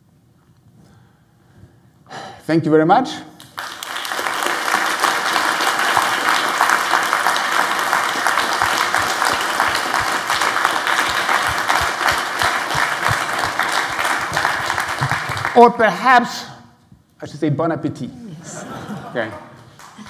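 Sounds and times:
audience applauding: 3.4 - 15.8, 19.2 - 20.0.

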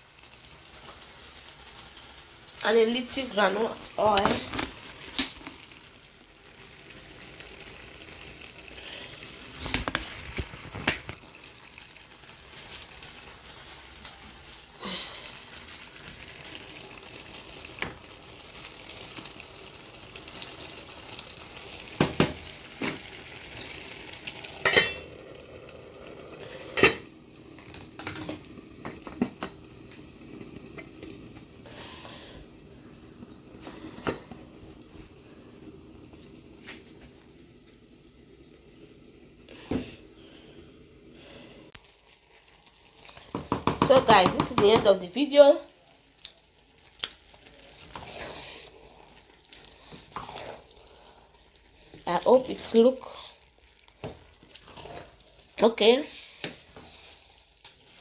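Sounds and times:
pot sizzling: 0.0 - 58.0
wooden spoon knocking on pot: 43.3 - 45.0.

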